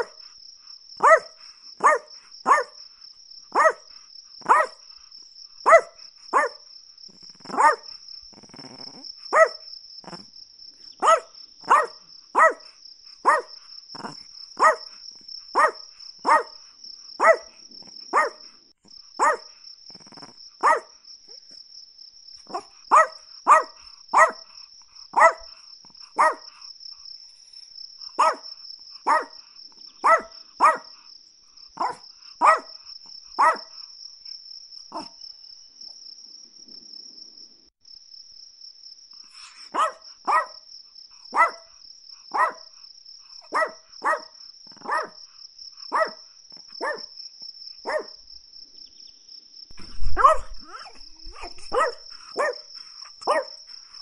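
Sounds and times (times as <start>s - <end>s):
small dog barking sharply: 1.0s - 2.8s, 3.6s - 3.8s, 4.4s - 4.8s, 5.7s - 6.6s, 7.5s - 7.9s, 9.3s - 9.6s, 11.0s - 12.6s, 13.2s - 13.5s, 14.6s - 14.9s, 15.6s - 16.6s, 17.2s - 17.5s, 18.1s - 18.4s, 19.2s - 19.5s, 20.6s - 20.9s, 22.5s - 24.4s, 25.2s - 25.5s, 26.2s - 26.4s, 28.2s - 28.5s, 29.1s - 29.3s, 30.0s - 30.9s, 31.8s - 32.7s, 33.4s - 33.7s, 39.7s - 40.6s, 41.3s - 41.7s, 42.3s - 42.6s, 43.5s - 45.2s, 45.9s - 46.2s, 46.8s - 47.1s, 47.9s - 48.2s, 49.8s - 52.6s, 53.2s - 53.6s.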